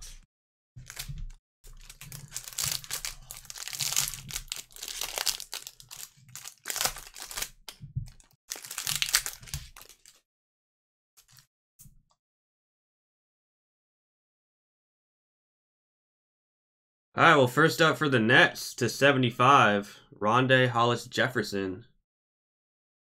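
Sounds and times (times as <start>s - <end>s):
cellophane wrapper crinkling: 0.8s - 10.2s.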